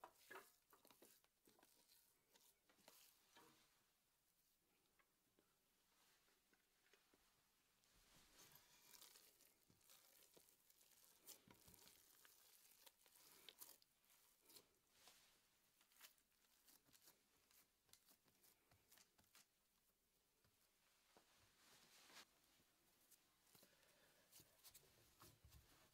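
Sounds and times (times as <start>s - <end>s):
hands kneading sticky dough: 0.0s - 3.4s, 8.0s - 22.3s.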